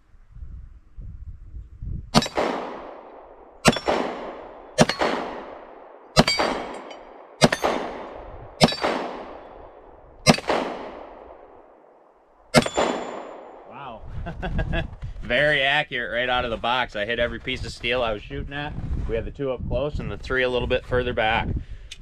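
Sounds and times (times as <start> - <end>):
steel target ringing: 2.2 - 2.6, 3.6 - 5.3, 6.2 - 9.7, 10.3 - 10.6, 12.6 - 13.5
pistol shots: 2.2 - 11.9, 12.5 - 13.7.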